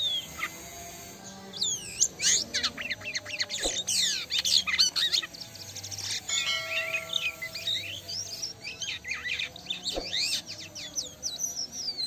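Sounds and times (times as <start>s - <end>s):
starling singing: 0.0s - 12.0s.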